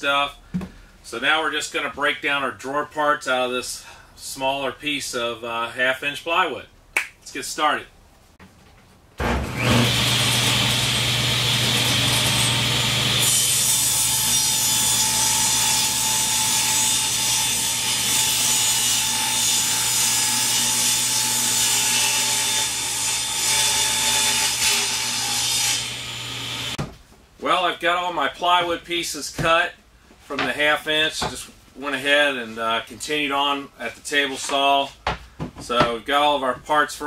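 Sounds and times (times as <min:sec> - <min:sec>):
saw ripping plywood: 0:09.2 - 0:17.8
table saw running: 0:09.2 - 0:20.0, 0:22.2 - 0:26.8.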